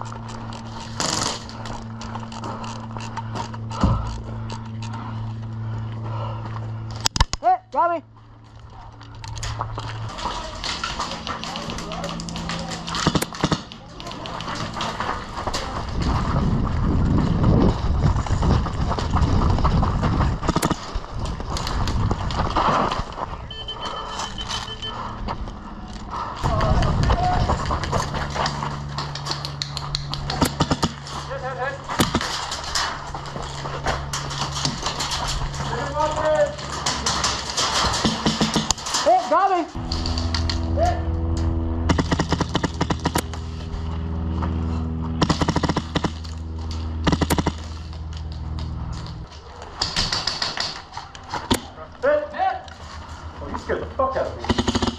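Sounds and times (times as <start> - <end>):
footsteps crunching on gravel: 8.0 - 13.0, 13.9 - 29.2.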